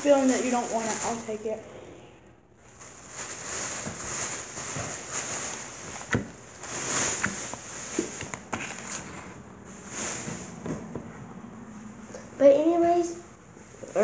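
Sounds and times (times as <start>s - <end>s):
plastic bag rustling: 0.0s - 1.6s, 2.6s - 10.7s.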